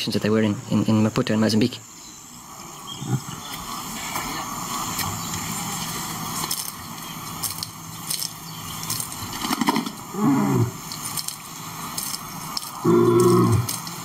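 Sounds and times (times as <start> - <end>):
hissy background with crackles: 0.0 - 14.0
lion calling: 2.8 - 5.5, 9.8 - 11.0, 12.8 - 13.8.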